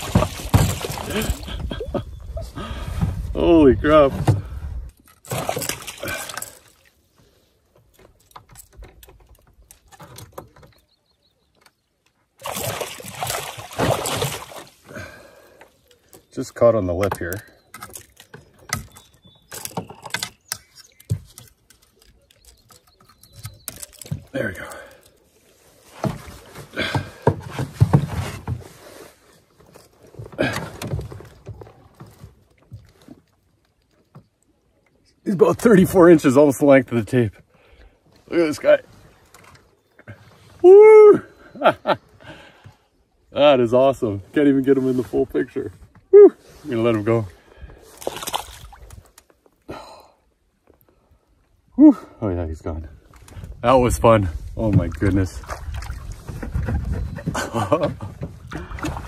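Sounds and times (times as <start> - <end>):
knocks against canoe hull: 0.0 - 1.1
fish thrashing and splashing: 0.0 - 1.7, 5.1 - 7.0, 12.4 - 15.5, 47.8 - 49.2, 54.9 - 59.0.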